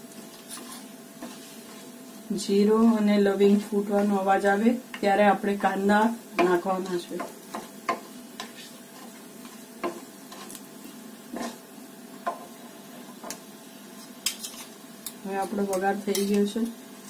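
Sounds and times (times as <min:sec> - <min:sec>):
spices sizzling in hot oil: 0:00.0 - 0:17.0
wooden spatula stirring: 0:00.2 - 0:02.3, 0:06.4 - 0:10.6.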